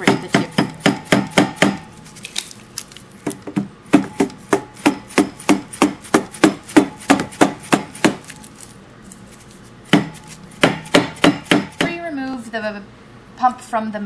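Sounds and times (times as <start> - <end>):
mallet knocking on metal pump: 0.0 - 1.8, 3.9 - 8.2, 9.9 - 12.0.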